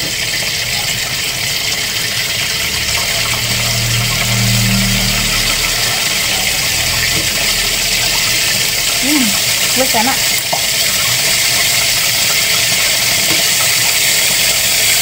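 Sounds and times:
soup boiling and bubbling: 0:00.0 - 0:15.0
low hum: 0:01.7 - 0:10.3.

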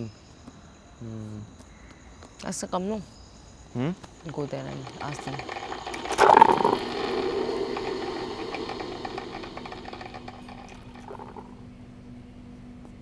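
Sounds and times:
steady low hum: 0:03.6 - 0:13.0
mechanical whirring with rattling: 0:04.2 - 0:11.8.

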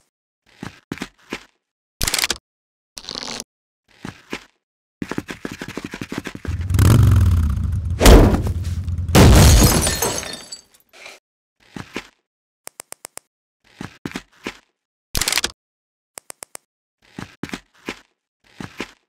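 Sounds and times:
rattling run: 0:06.5 - 0:09.2
deep rumble: 0:06.5 - 0:09.5
sharp hit: 0:06.5 - 0:09.6
crashing shattering effect: 0:06.5 - 0:10.6.

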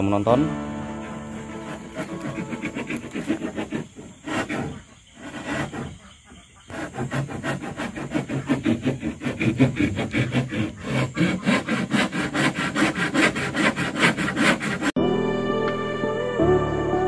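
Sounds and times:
soft background music: 0:00.0 - 0:02.6, 0:15.0 - 0:17.0
hand tool stroking wood: 0:00.9 - 0:15.0.

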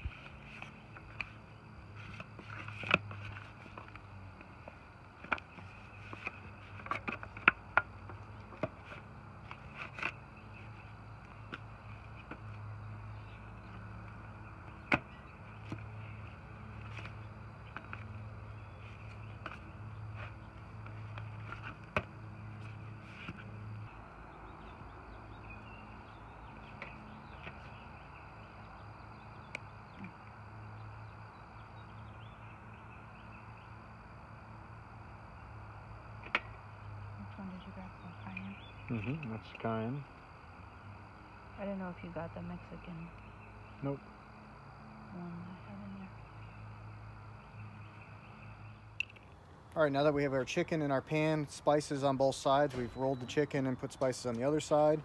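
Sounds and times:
faint bird chirps: 0:37.2 - 0:40.0.

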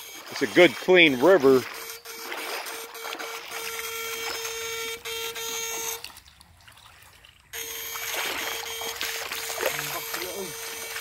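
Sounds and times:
electrofishing shocker buzz: 0:00.0 - 0:06.1, 0:07.6 - 0:11.0
water trickling: 0:00.0 - 0:11.0.

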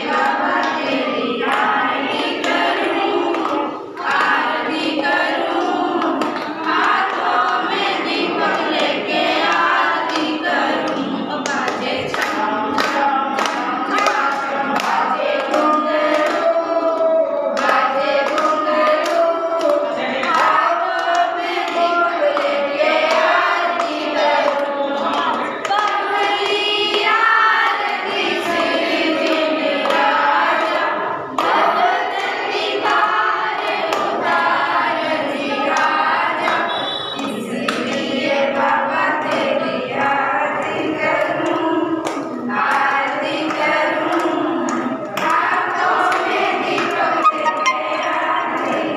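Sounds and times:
women singing together: 0:00.0 - 0:48.9
hands clapping in time: 0:01.4 - 0:04.5, 0:05.4 - 0:07.6, 0:08.4 - 0:17.0, 0:17.6 - 0:27.8, 0:35.7 - 0:38.0, 0:41.3 - 0:48.9.

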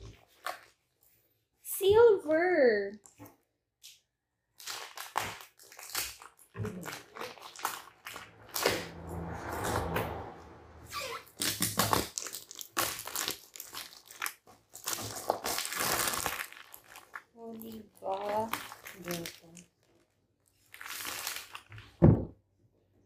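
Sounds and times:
packaging crinkling and rustling: 0:04.6 - 0:08.8, 0:11.4 - 0:22.0.

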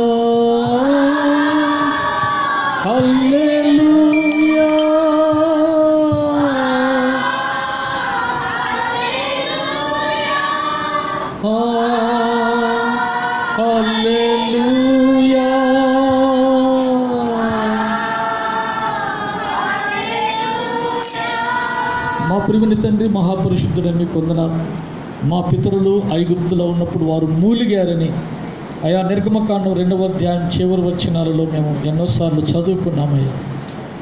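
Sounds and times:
person singing slow worship song: 0:00.0 - 0:25.8.

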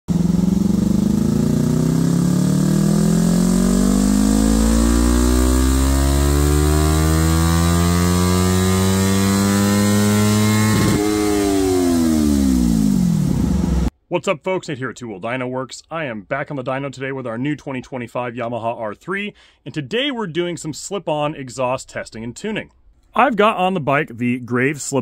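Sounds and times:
motorcycle engine revving: 0:00.1 - 0:13.9.

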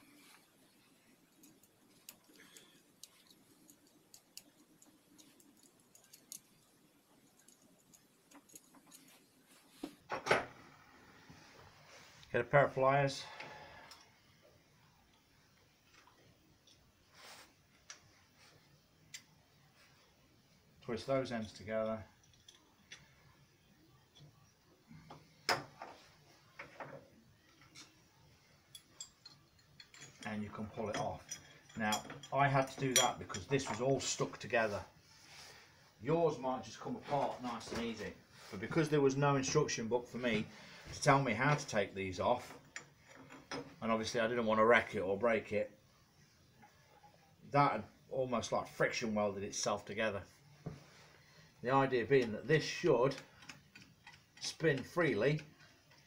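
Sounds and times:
faint metallic clicks and ticks: 0:00.0 - 0:10.0, 0:21.4 - 0:23.2, 0:26.6 - 0:28.0, 0:28.6 - 0:34.3, 0:42.4 - 0:43.7, 0:52.0 - 0:56.0.

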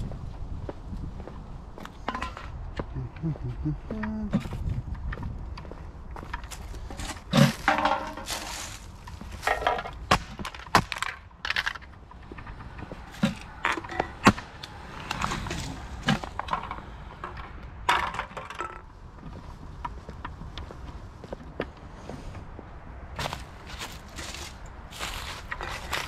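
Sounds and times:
footsteps crunching through dry leaves: 0:06.5 - 0:09.5, 0:23.2 - 0:26.0.

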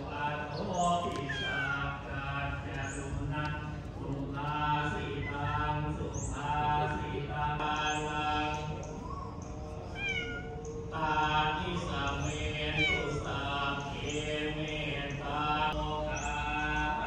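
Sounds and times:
chanting: 0:00.0 - 0:17.0
cat meowing: 0:01.1 - 0:01.9, 0:09.9 - 0:10.7, 0:12.7 - 0:13.3.

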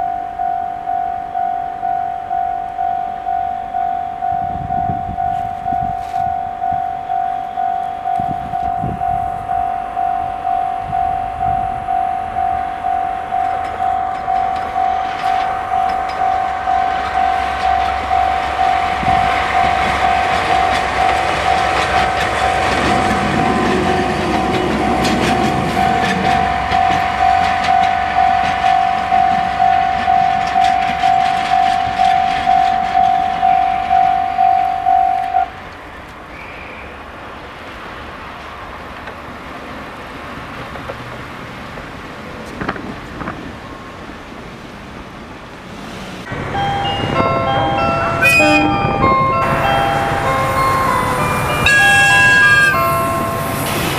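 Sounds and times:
level crossing bell clanging: 0:00.0 - 0:35.5, 0:46.3 - 0:53.9
diesel train rumbling over rails: 0:00.0 - 0:53.9.

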